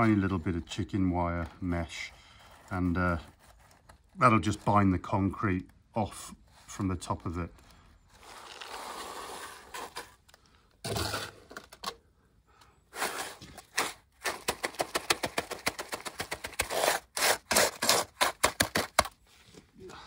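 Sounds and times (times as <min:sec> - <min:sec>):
shovel scraping wet concrete: 0:08.2 - 0:10.2, 0:10.8 - 0:11.8, 0:12.9 - 0:19.1
shovel patting concrete: 0:10.8 - 0:11.9, 0:13.0 - 0:19.2.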